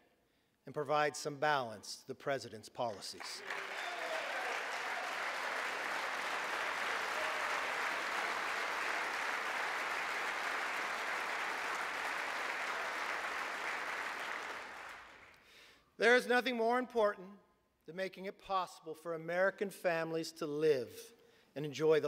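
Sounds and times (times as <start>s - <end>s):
crowd clapping: 3.2s - 15.5s.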